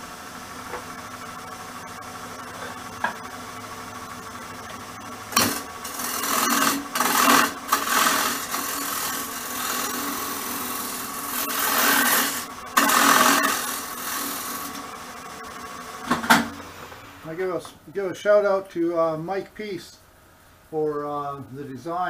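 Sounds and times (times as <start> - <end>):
wood lathe humming: 0.8 - 17.5
turning tool scraping wood: 5.3 - 14.9.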